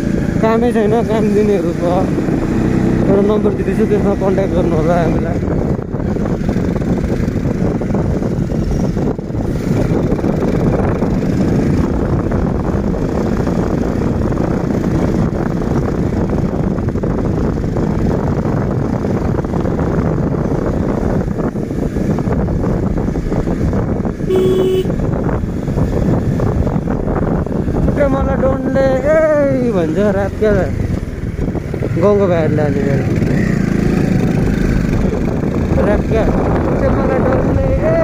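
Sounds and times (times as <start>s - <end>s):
motorbike engine: 0.0s - 38.0s
wind rumble on microphone: 0.0s - 38.0s
horn beep: 24.3s - 25.0s.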